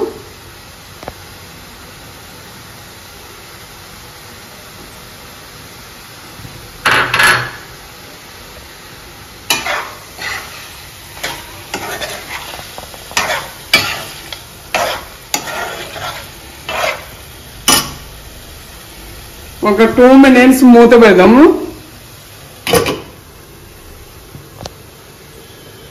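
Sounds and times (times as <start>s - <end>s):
chicken sizzling in oil: 0.0s - 25.9s
metal spoon scraping frying pan: 9.5s - 18.0s.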